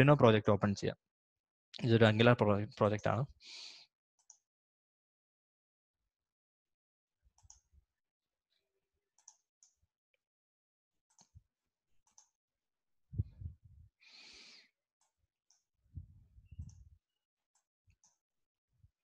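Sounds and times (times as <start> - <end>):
computer mouse clicks: 7.4 - 7.6.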